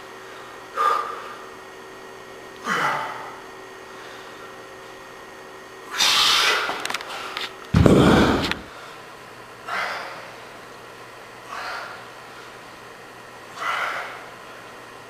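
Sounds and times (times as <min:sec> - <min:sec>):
camera handling rumble: 0:06.8 - 0:08.7.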